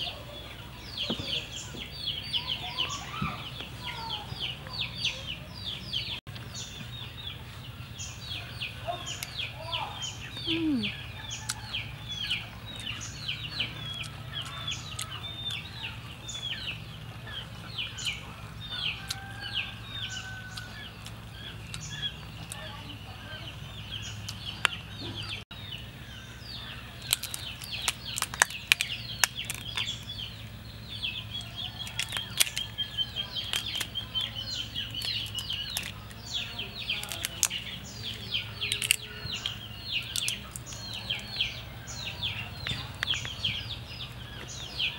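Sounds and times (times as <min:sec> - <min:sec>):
birds chirping: 0:00.0 - 0:44.9
prawn shells cracking: 0:27.0 - 0:30.4, 0:31.3 - 0:41.4.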